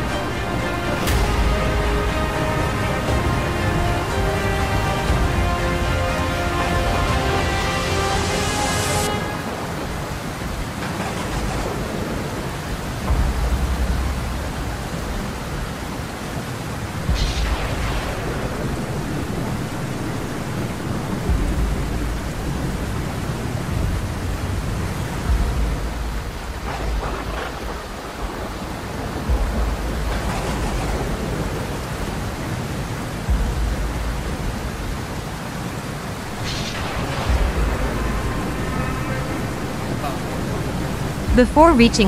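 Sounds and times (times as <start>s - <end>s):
heavy rain hissing: 0.0s - 42.0s
low rumble: 8.9s - 32.4s, 36.2s - 42.0s.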